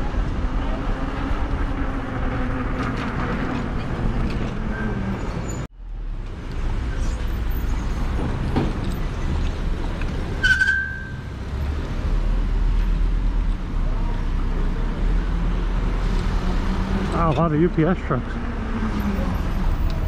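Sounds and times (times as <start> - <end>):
road traffic passing: 0.0 - 20.0
short high squeal: 10.4 - 11.2.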